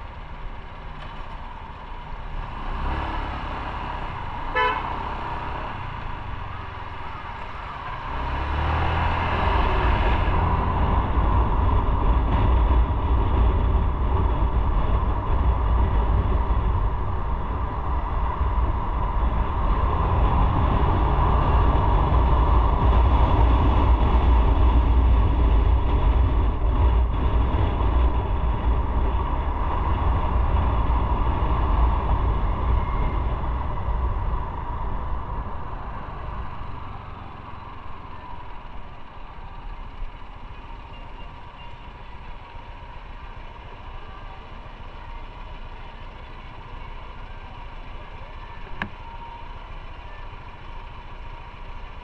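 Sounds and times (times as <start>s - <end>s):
motorcycle engine rumble: 0.0s - 52.0s
wind noise: 2.4s - 40.3s
vehicle horn toot: 4.5s - 5.2s.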